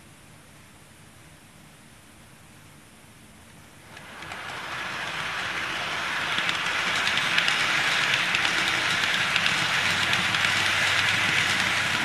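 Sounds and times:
model train running on track: 3.9 - 12.0
rapid clicking: 3.9 - 12.0.

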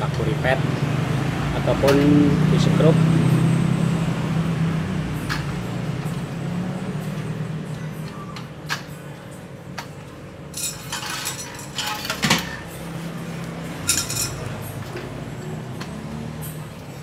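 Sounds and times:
metal pipes clinking: 10.5 - 12.8, 13.8 - 15.1.

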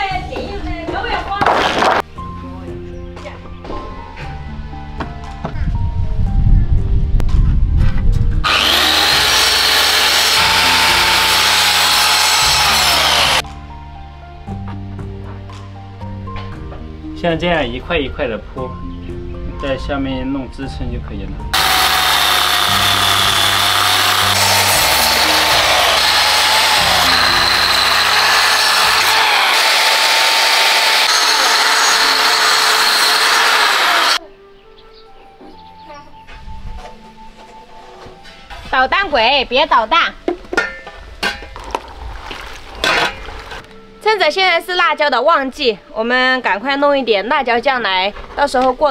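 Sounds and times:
power saw cutting wood: 8.4 - 13.4, 21.6 - 34.2.

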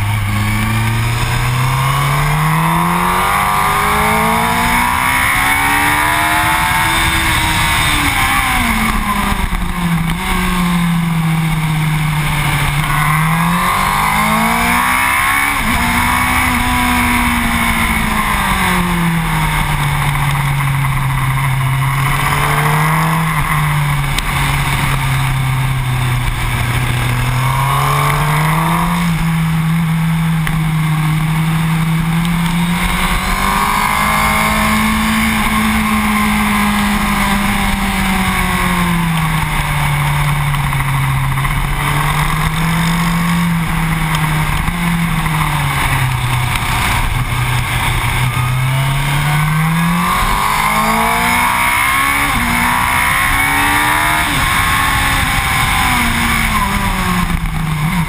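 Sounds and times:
motorcycle engine revving: 0.0 - 58.0
wind rush on microphone: 31.8 - 58.0.

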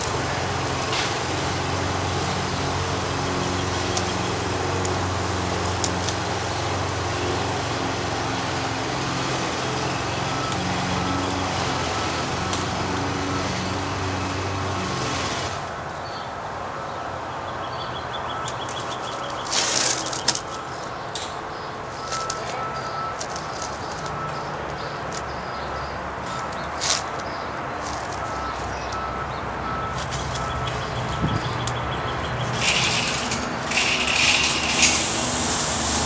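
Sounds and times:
motor engine running: 0.0 - 15.6, 29.9 - 36.0.

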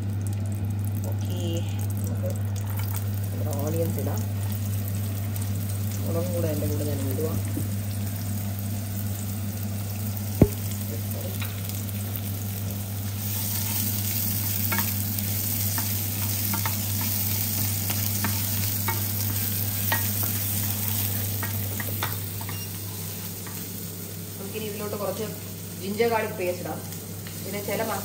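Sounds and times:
onions sizzling in hot oil: 0.0 - 28.0
sharp knock: 10.4 - 10.6.

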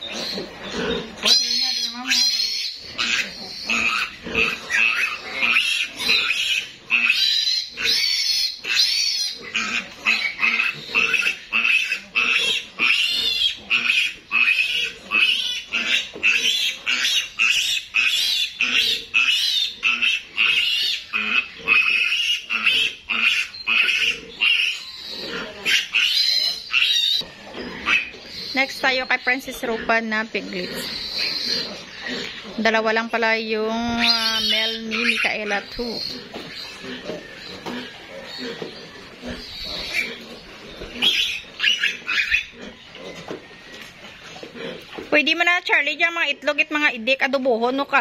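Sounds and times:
piglet squealing: 0.0 - 44.2.

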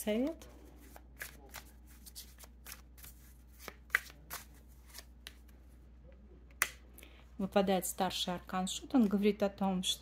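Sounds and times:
cards shuffling: 0.2 - 5.5
sharp card snap: 3.6 - 5.4.

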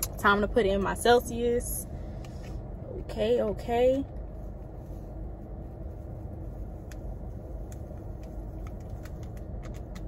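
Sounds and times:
low rumble inside car: 0.0 - 10.0
faint packet and bottle clicks: 7.7 - 10.0.

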